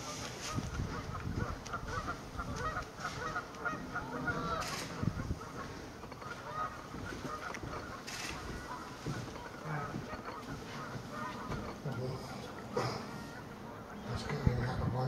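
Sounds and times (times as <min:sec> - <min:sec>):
waterfowl calling: 0:00.0 - 0:15.0.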